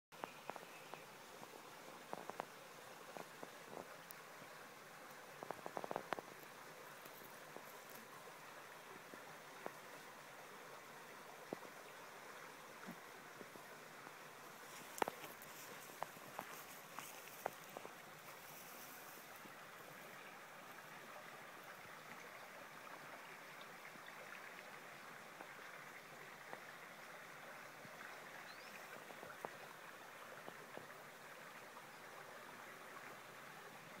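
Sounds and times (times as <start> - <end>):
running water rushing: 0.2 - 34.0
soft ticks: 5.1 - 8.1, 14.8 - 17.9.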